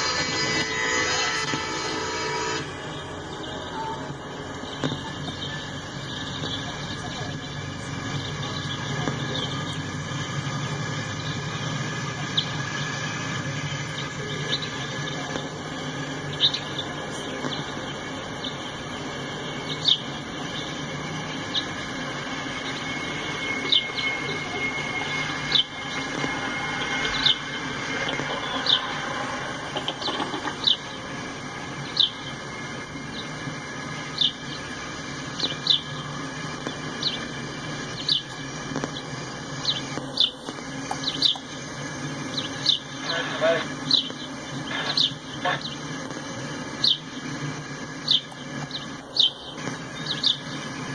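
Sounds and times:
high wheel squeaks: 0.0 - 33.4
steel wheels rumbling on rail: 0.0 - 45.2.

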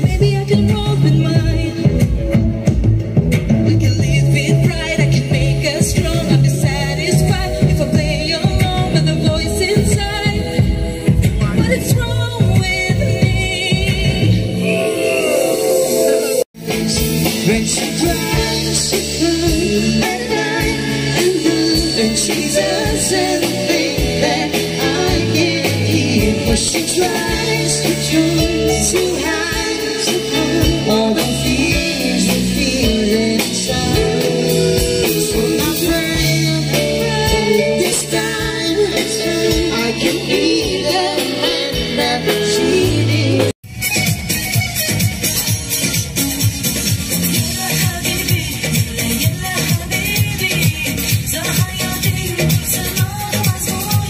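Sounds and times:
electric guitar: 0.0 - 54.0
full band playing: 0.0 - 54.0
person singing: 11.4 - 43.6.

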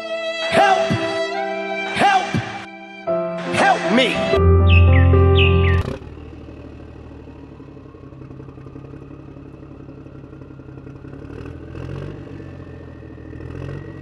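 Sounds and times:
engine running: 4.4 - 14.0.

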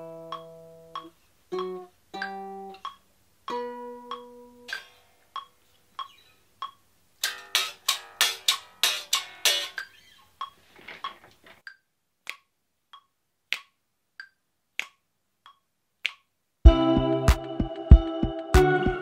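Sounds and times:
finger snaps: 11.7 - 16.3
song playing: 16.7 - 19.0.

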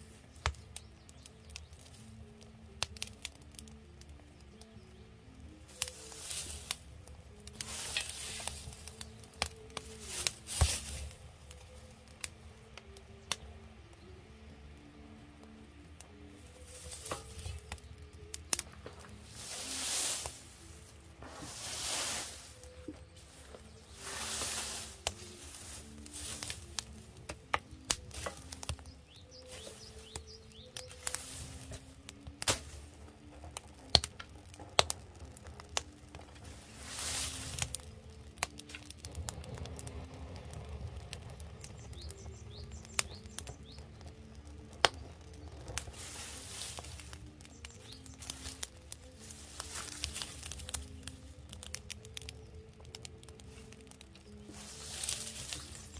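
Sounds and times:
wood fire crackling and popping: 0.0 - 55.9
fire rushing swells: 19.0 - 52.3.

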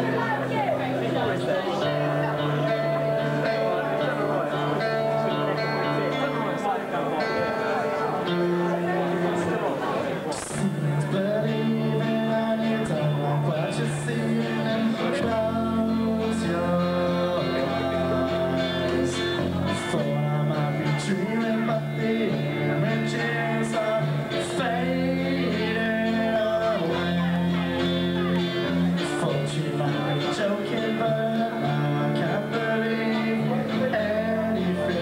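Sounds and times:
man singing: 0.0 - 9.7, 10.3 - 35.0
live band playing a ballad: 0.0 - 35.0
sustained guitar chords: 0.0 - 35.0.

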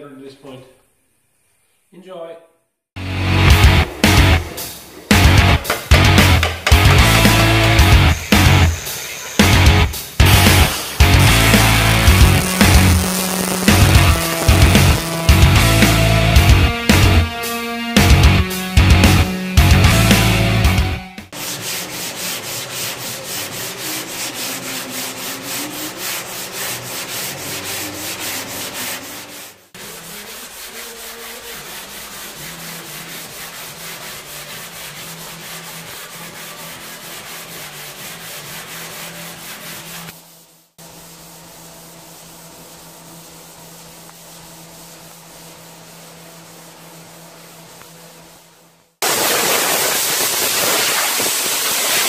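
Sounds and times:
sandpaper rasping on metal panel: 10.3 - 16.0, 21.3 - 40.5.

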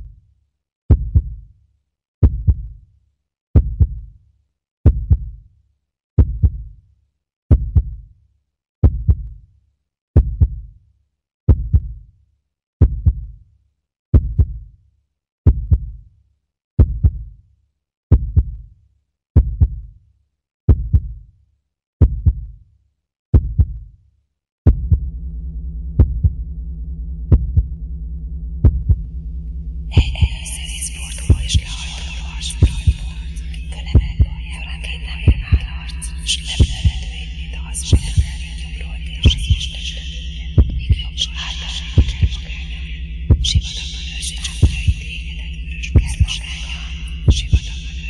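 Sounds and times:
deep thumps: 24.7 - 31.8.

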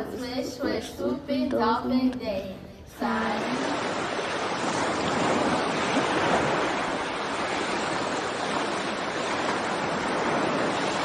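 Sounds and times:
ocean waves on rocky shore: 3.0 - 11.0.

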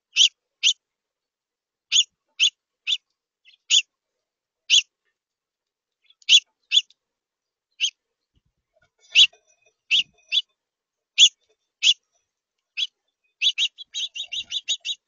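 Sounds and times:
songbird chip calls: 0.0 - 0.8, 1.9 - 3.9, 4.7 - 4.9, 6.0 - 7.0, 7.8 - 8.0, 9.1 - 10.5, 11.2 - 12.0, 12.7 - 15.0.

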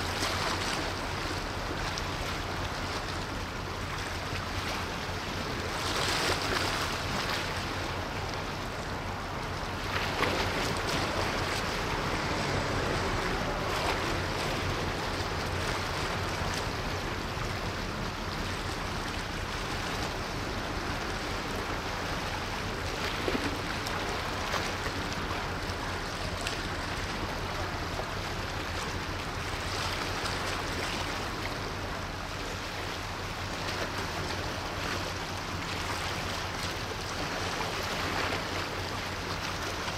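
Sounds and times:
faint low engine drone: 0.0 - 39.9
water wash: 0.0 - 39.9
wind: 0.0 - 39.9.

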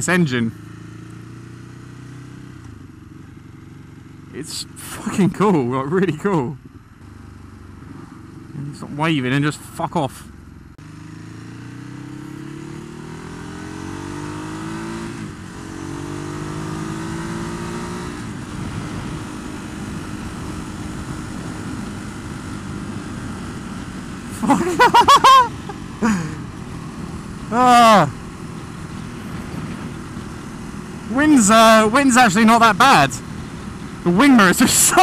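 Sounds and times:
motorcycle engine accelerating: 0.0 - 35.0
wind noise: 18.2 - 24.3, 28.1 - 31.1
person shouting: 24.4 - 26.4, 27.5 - 28.1, 34.2 - 35.0.

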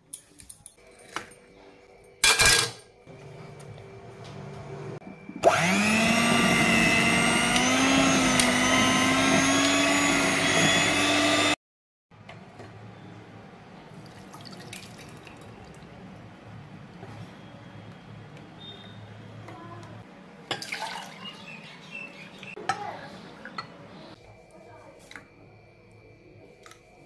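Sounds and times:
electric blender motor whining: 3.2 - 11.6.

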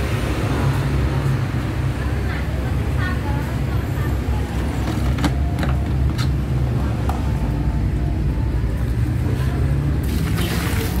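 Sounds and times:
water splashing onto tiles: 10.0 - 11.0.

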